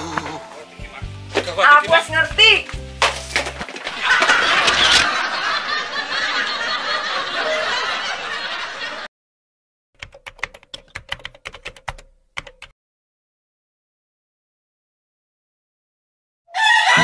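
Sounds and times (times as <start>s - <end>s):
keyboard typing clicks: 10.0s - 12.7s.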